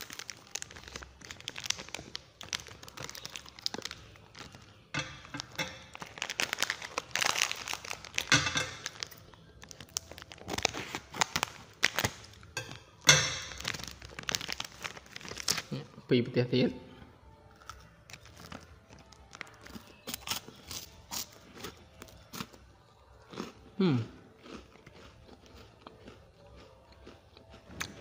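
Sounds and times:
plastic wrappers crinkling and tearing: 0:00.0 - 0:15.9, 0:17.5 - 0:22.5.

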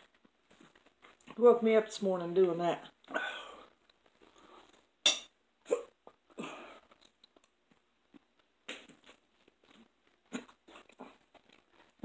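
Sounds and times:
close-up chewing: 0:00.0 - 0:01.4, 0:02.9 - 0:05.0, 0:06.0 - 0:12.0.

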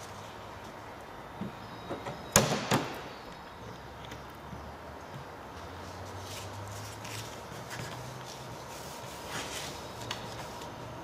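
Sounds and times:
paper towel rustling and wiping: 0:05.8 - 0:11.0.

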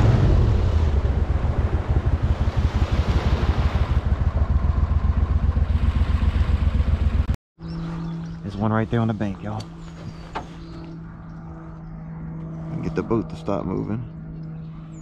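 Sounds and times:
boat engine pulsing: 0:00.0 - 0:15.0.

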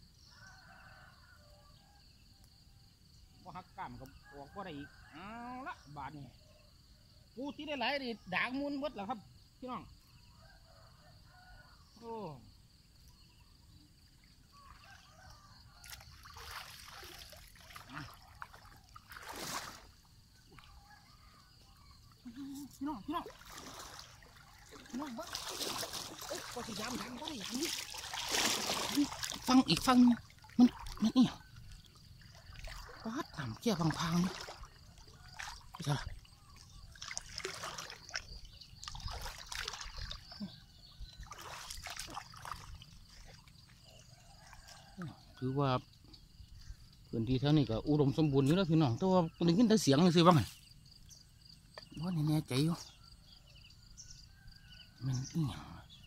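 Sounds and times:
faint insect drone: 0:00.0 - 0:56.0
water dripping and sloshing: 0:14.1 - 0:45.5
splashing from wading: 0:14.2 - 0:45.5.

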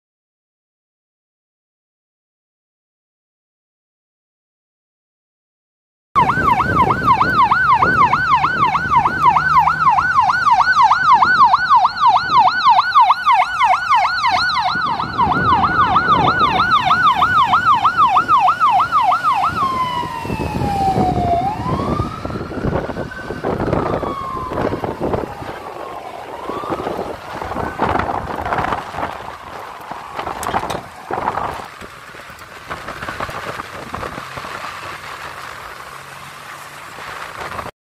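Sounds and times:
ambulance siren: 0:06.2 - 0:37.7.

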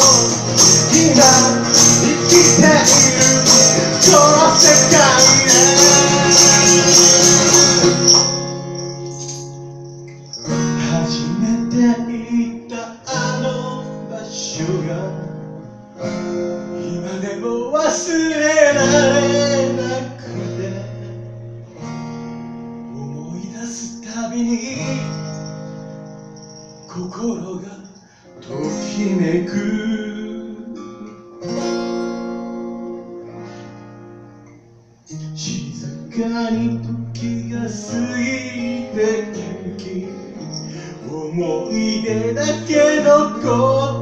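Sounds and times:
man singing: 0:00.0 - 0:08.9, 0:10.6 - 0:15.5, 0:16.8 - 0:21.1, 0:22.9 - 0:25.6, 0:26.8 - 0:31.3, 0:35.1 - 0:44.0
acoustic guitar playing: 0:00.0 - 0:44.0.

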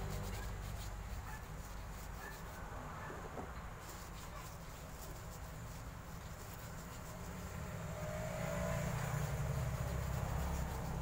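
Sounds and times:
low engine rumble: 0:00.0 - 0:02.0.

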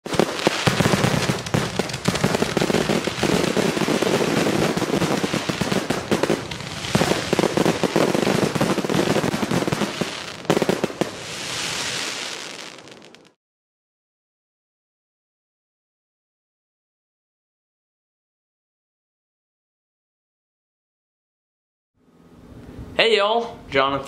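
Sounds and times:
fireworks crackling and banging: 0:00.0 - 0:13.4.

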